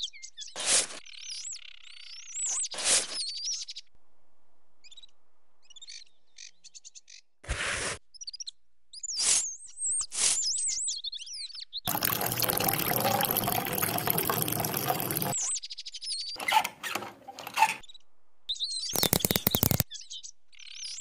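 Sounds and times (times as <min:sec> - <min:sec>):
water pouring into cup: 0:11.9 - 0:15.4
birds chirping: 0:17.4 - 0:21.0.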